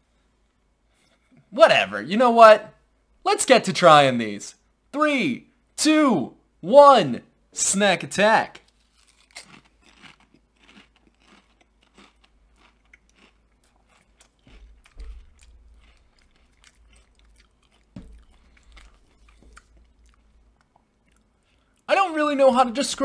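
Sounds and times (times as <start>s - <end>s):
person chewing crisps: 8.6s - 21.9s
low thumps: 14.6s - 15.8s, 17.9s - 20.2s.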